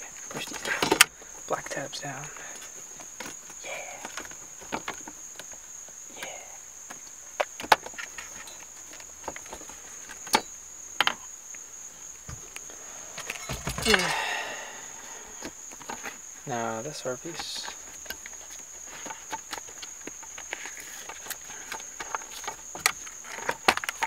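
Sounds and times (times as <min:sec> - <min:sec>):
handling rustle: 0:06.8 - 0:11.2, 0:17.3 - 0:24.0.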